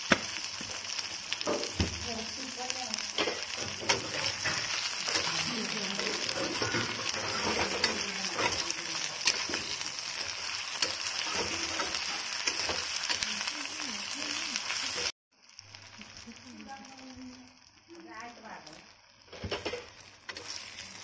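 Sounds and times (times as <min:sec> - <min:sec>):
crabs sizzling in oil: 0:00.0 - 0:21.0
steel spatula scraping a pan: 0:03.1 - 0:13.2, 0:19.5 - 0:21.0.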